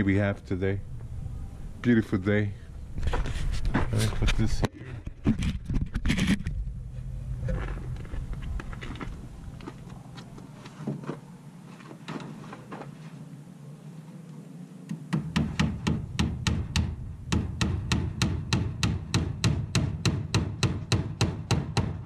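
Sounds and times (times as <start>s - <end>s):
hammer driving nails into wood: 15.1s - 22.0s.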